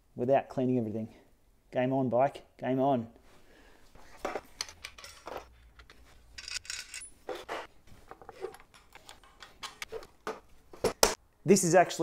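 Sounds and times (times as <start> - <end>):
metal stand clanking and rattling: 4.3 - 10.2.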